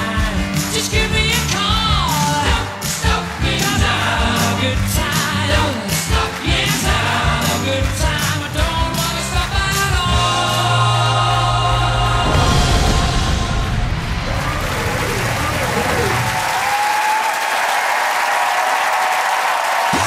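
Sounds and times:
song with lead vocal and choir: 0.0s - 14.2s
crowd noise: 8.6s - 20.0s.

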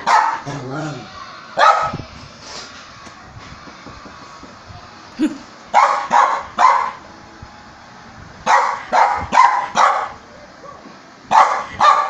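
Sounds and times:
small dog barking: 0.0s - 0.6s, 1.6s - 2.0s, 5.7s - 7.0s, 8.5s - 10.2s, 11.3s - 12.0s.

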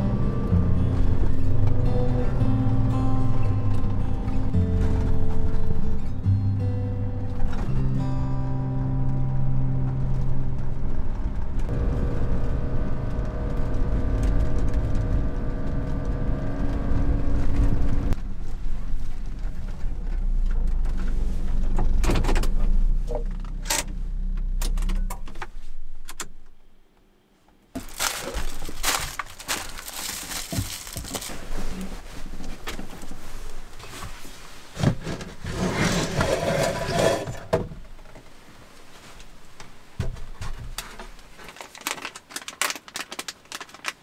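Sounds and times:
truck engine running: 0.0s - 24.6s
plastic bag rustling: 27.8s - 35.4s, 40.8s - 44.0s.

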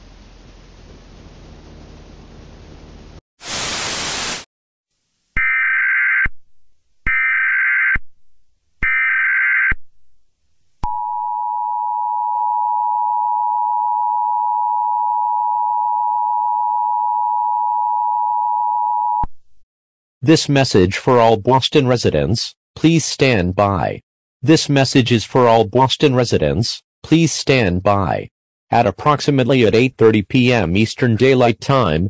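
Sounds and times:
static burst: 3.4s - 4.5s.

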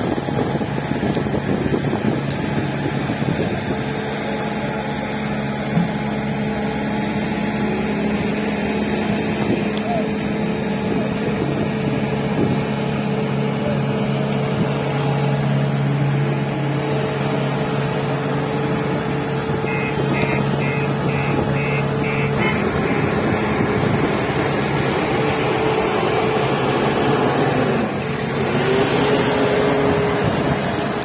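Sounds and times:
engine revving: 0.0s - 31.0s
heavy diesel engines running: 0.0s - 31.0s
short beeps: 19.6s - 22.6s.

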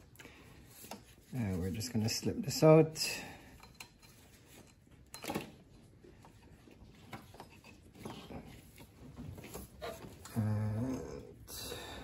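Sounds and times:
faint handling noises: 0.0s - 2.5s.

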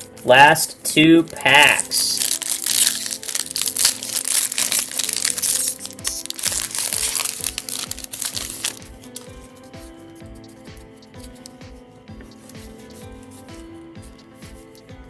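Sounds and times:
soft background music: 0.0s - 15.0s
foil wrapper crinkling: 1.2s - 9.4s.

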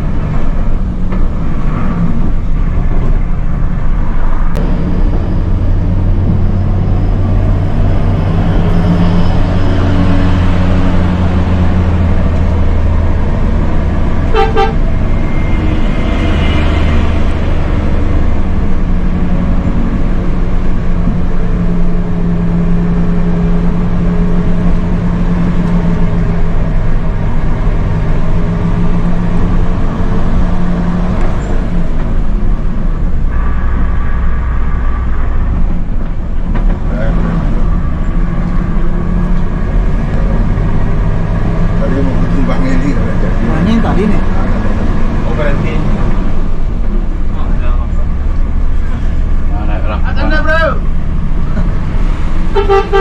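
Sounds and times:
diesel coach engine labouring: 0.0s - 53.0s
short horn toot: 14.3s - 15.6s, 52.5s - 53.0s.

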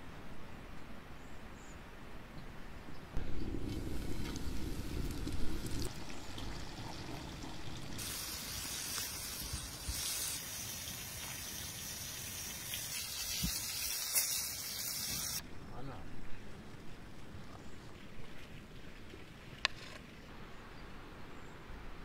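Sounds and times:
fish sizzling in hot oil: 3.6s - 15.4s.

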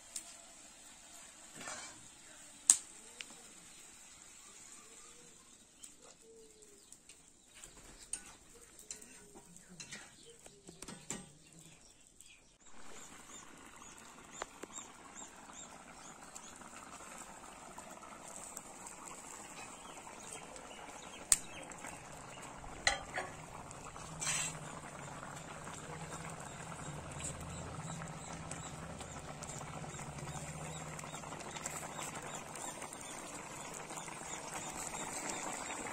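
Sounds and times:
curry bubbling at the boil: 0.0s - 35.9s
metal pots and utensils clinking: 1.5s - 2.1s, 8.1s - 11.3s, 21.9s - 26.4s.

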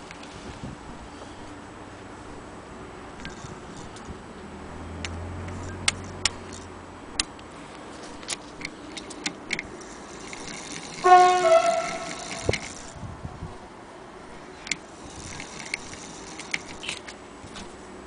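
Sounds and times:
light clicks of metal parts: 3.2s - 11.0s, 14.6s - 17.8s
loud ringing tone: 10.8s - 12.9s.

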